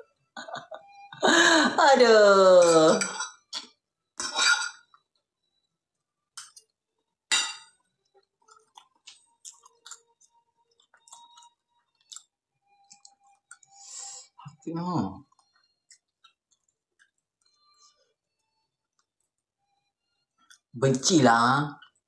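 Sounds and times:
chewing: 8.6 - 12.3, 15.2 - 17.9.

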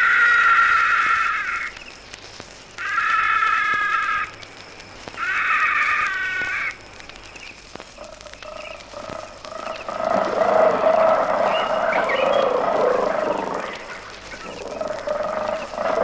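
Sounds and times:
animal call with stacked pitches: 8.9 - 16.0
low rough animal call: 8.9 - 16.0.

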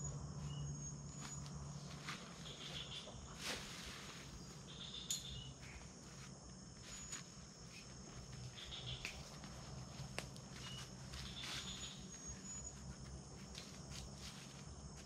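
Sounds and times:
crickets droning: 0.0 - 15.0
footsteps in leaf litter: 1.2 - 4.4, 9.2 - 15.0
short chirping calls: 4.7 - 5.8.

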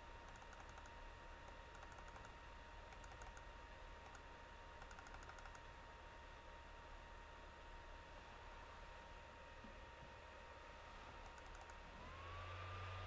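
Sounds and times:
low steady hum: 0.0 - 13.0
computer keyboard clicking: 0.3 - 0.9, 1.5 - 2.3, 2.9 - 3.4, 4.0 - 4.2, 4.8 - 5.6, 11.2 - 11.8.

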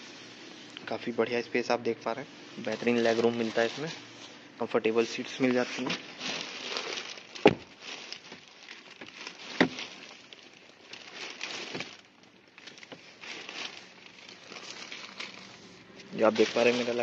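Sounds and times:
plastic seat covers crinkling: 2.6 - 17.0.

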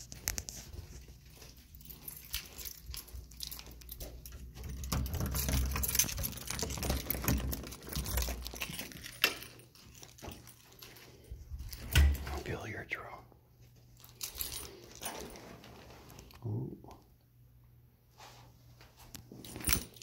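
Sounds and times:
door handle rattling and clicking: 3.5 - 10.5.

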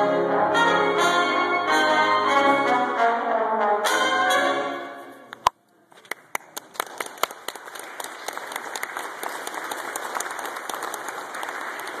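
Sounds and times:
congregation applauding: 6.0 - 12.0.

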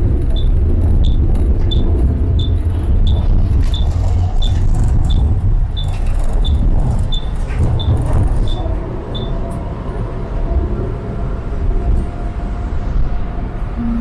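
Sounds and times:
tram rumbling on rails: 0.0 - 14.0
short high beeps: 13.8 - 14.0.

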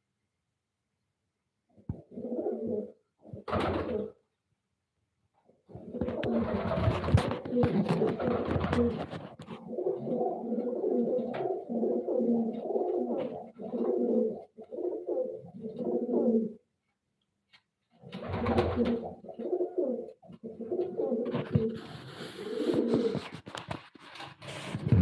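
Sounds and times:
pigeon cooing: 1.9 - 4.2, 5.7 - 16.6, 18.1 - 23.4.

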